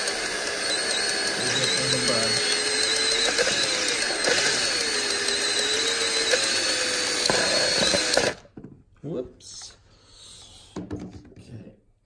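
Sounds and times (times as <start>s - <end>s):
electric drill whining: 0.0s - 8.5s.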